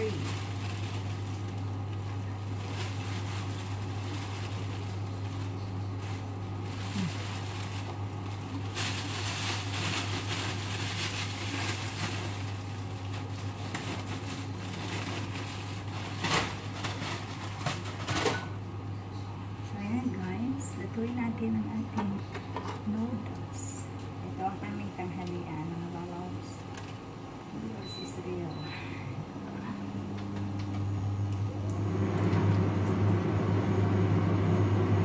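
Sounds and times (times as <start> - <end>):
plastic bag rustling and crinkling: 0.0 - 18.4
kitchen appliance humming: 0.0 - 35.0.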